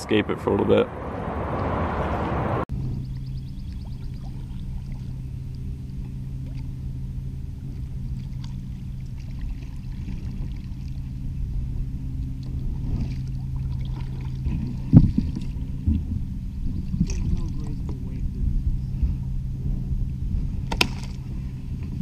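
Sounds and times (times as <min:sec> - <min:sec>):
steady low hum: 0:00.0 - 0:22.0
paddle strokes splashing: 0:03.7 - 0:05.3, 0:07.6 - 0:11.3, 0:12.4 - 0:16.0
kayak knocking on shore: 0:20.6 - 0:21.2.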